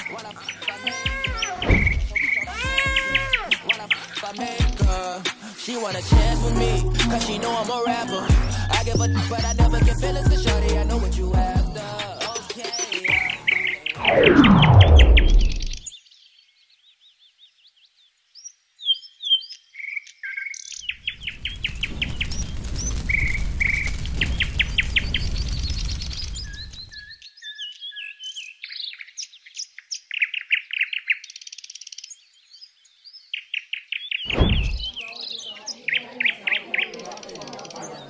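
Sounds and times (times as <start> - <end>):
songbirds chirping and trilling: 0.0 - 38.0
low thump: 1.6 - 2.2, 34.3 - 34.9
rushing noise: 34.3 - 34.9.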